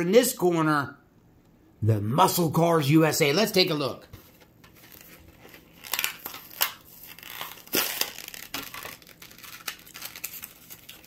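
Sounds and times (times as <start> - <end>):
plastic packaging crinkling: 4.7 - 11.0.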